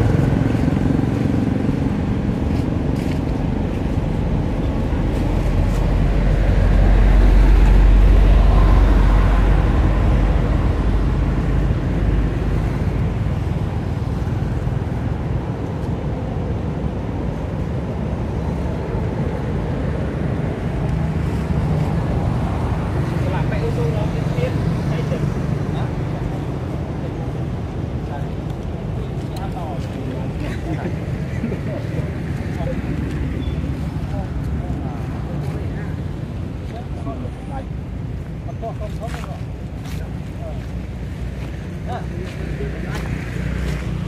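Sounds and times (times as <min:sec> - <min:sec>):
vehicle passing: 0:00.0 - 0:15.1
road traffic rumble: 0:00.0 - 0:44.0.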